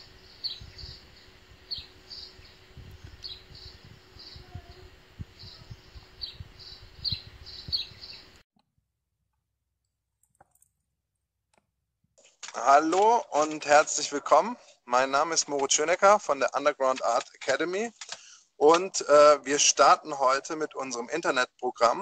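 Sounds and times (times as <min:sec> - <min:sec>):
outdoor ambience: 0:00.0 - 0:08.4, 0:11.5 - 0:22.0
low thumps: 0:02.4 - 0:08.4.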